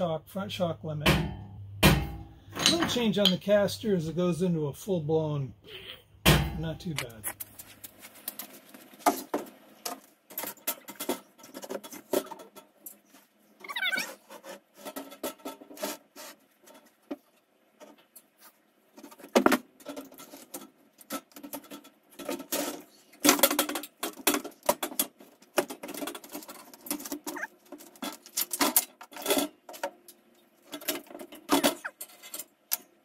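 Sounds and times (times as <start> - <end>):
sharp metal knocks: 1.0 - 3.4, 6.2 - 7.0
metal clunks and scrapes: 1.0 - 3.9, 6.2 - 13.4, 14.0 - 32.9.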